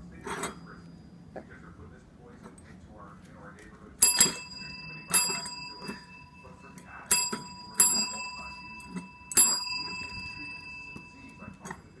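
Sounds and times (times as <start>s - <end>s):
desk bell dinging: 4.0s - 12.0s.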